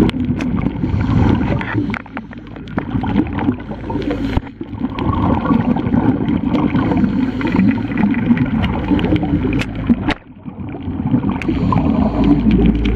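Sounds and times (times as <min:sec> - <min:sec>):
underwater bubbling: 0:00.0 - 0:12.9.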